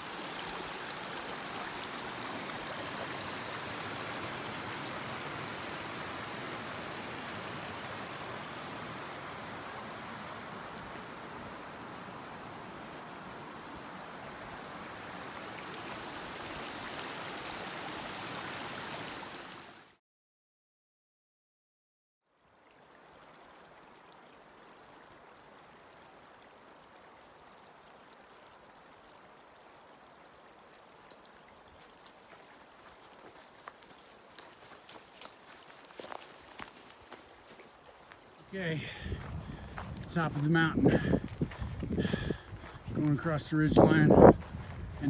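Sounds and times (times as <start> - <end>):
footsteps on trail: 31.1 - 45.0.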